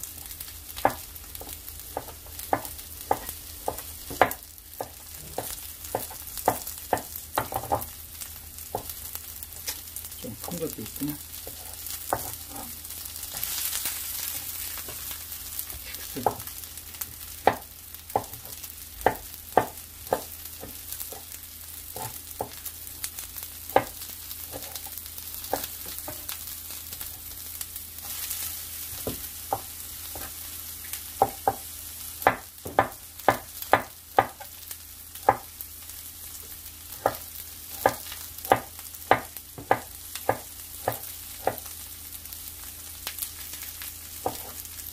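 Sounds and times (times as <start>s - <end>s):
vegetables sizzling in oil: 0.0s - 44.9s
knife chopping on wooden board: 0.8s - 7.9s, 8.7s - 9.0s, 11.4s - 12.4s, 17.4s - 21.3s, 21.9s - 22.6s, 23.7s - 24.8s, 25.4s - 26.3s, 28.9s - 30.4s, 31.2s - 34.5s, 35.2s - 35.5s, 37.0s - 41.7s, 44.2s - 44.6s.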